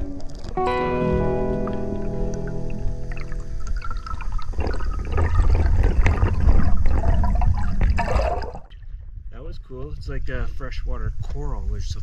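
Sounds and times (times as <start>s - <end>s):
song: 0.0s - 3.9s
water rushing past: 1.6s - 8.8s
bubbles gurgling underwater: 1.6s - 9.0s.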